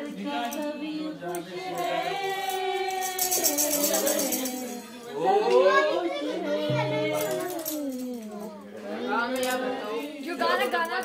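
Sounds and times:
rapid jingling beat: 6.7 - 8.1.

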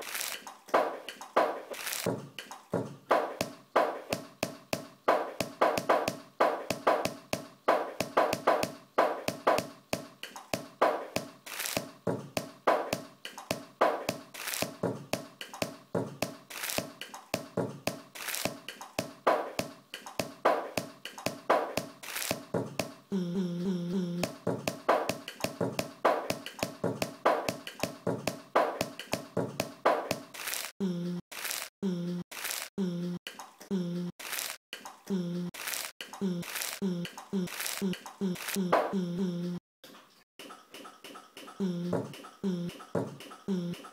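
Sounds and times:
percussive taps and clicks: 0.7 - 23.0, 24.2 - 30.3, 40.4 - 43.9.

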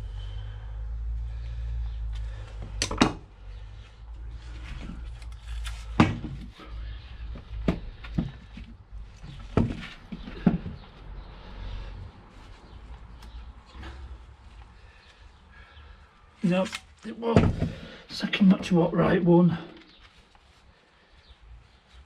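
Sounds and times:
steady low rumble: 0.0 - 6.0.

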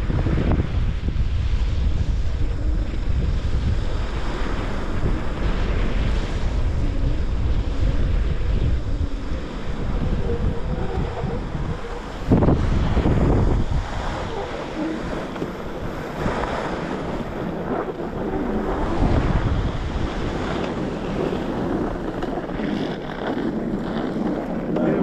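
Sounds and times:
wind buffeting microphone: 0.0 - 25.0
ski edges scraping snow: 20.1 - 25.0.

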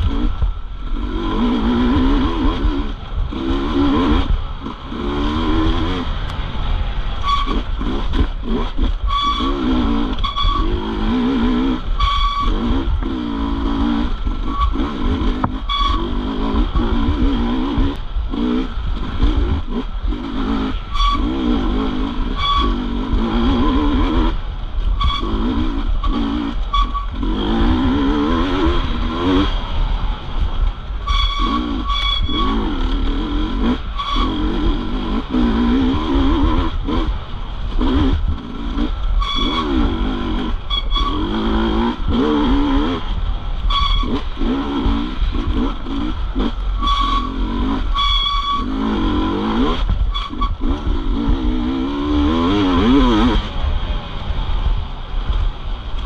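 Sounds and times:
dirt bike engine revving: 0.0 - 53.8
low rumble: 0.0 - 56.0.

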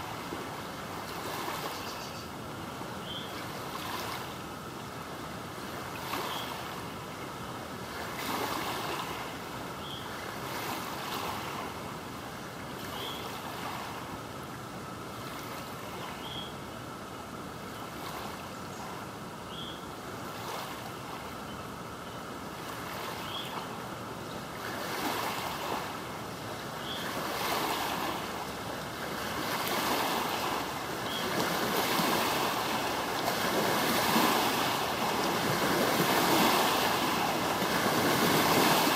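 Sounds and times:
water washing and lapping: 27.3 - 38.9.

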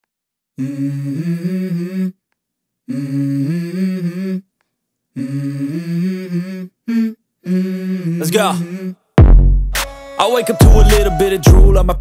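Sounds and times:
person humming a melody: 0.6 - 2.2, 2.9 - 4.5, 5.2 - 9.0, 10.4 - 12.0.

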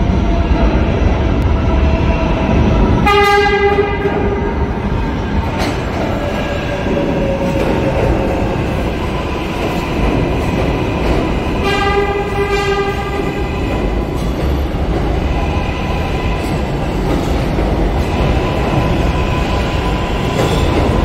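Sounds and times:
subway train rumbling past: 0.0 - 21.0
train horn blast: 3.0 - 4.5, 11.6 - 13.9.

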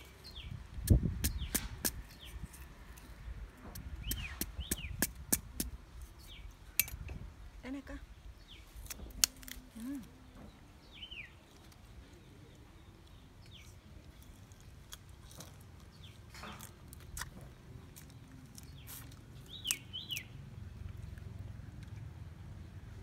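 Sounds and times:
plant stalk cracking and snapping: 8.7 - 10.2, 13.6 - 20.2.

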